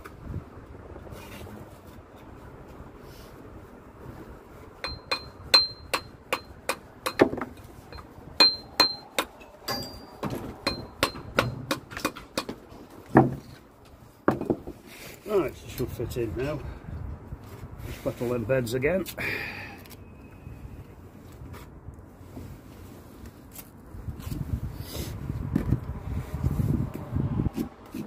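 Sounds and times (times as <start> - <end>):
steel tool tapping brick: 4.8 - 12.6.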